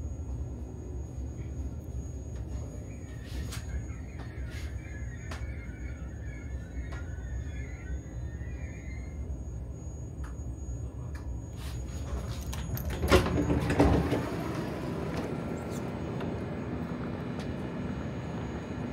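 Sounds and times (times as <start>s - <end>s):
train carriage rumble: 0.0s - 18.9s
sliding doors rushing open: 11.9s - 18.9s
train door clicks: 12.0s - 16.4s.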